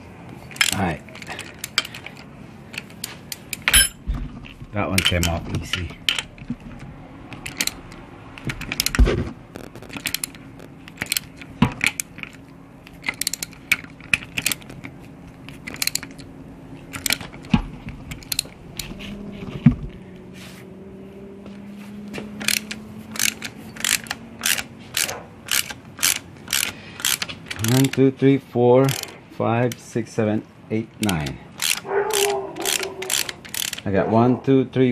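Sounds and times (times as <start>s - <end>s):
ratchet wrench clicking: 7.4s - 9.0s, 9.6s - 14.7s, 15.6s - 16.3s, 16.9s - 17.5s, 18.1s - 18.6s, 22.4s - 28.0s, 28.8s - 29.8s, 31.0s - 33.9s.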